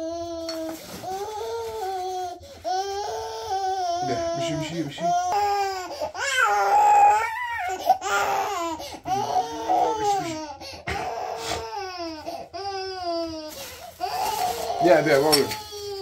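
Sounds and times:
infant squealing and calling: 3.1s - 12.2s.

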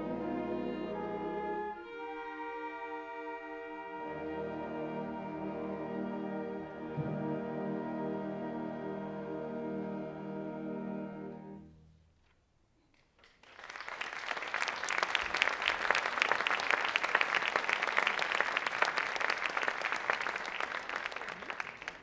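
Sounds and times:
audience applause: 13.2s - 22.0s.

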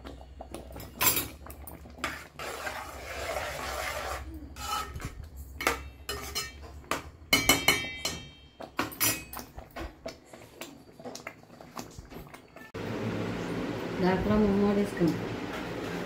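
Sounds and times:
metal spoon scraping pot: 0.8s - 8.4s
spoon clattering against pot: 5.6s - 9.5s.

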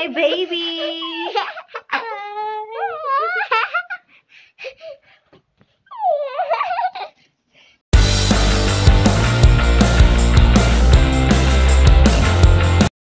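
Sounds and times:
boy and woman giggling: 0.2s - 4.1s, 6.0s - 7.2s.

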